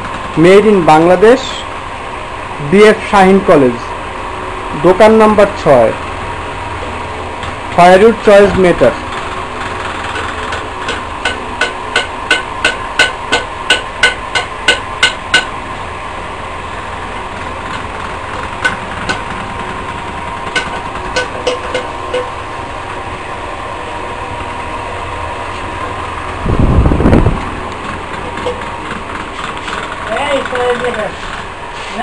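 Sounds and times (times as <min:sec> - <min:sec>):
steady background hum: 0:00.0 - 0:32.0
sharp ringing taps: 0:10.8 - 0:15.5, 0:20.5 - 0:22.4.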